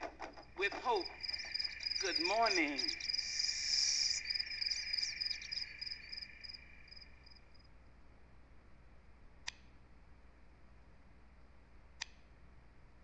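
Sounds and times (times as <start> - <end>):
crickets chirping: 0.0 - 7.9.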